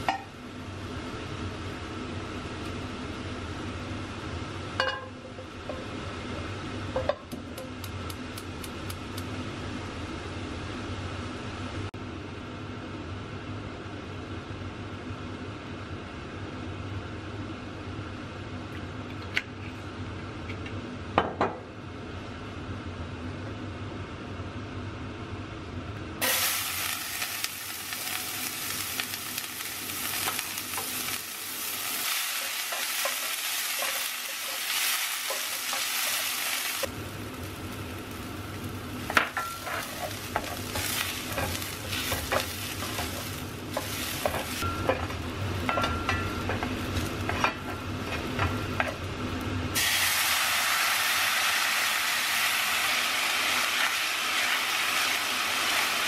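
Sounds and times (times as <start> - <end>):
liquid sizzling in hot pan: 26.2 - 48.8, 49.7 - 56.0
onion sizzling in hot oil: 26.2 - 56.0.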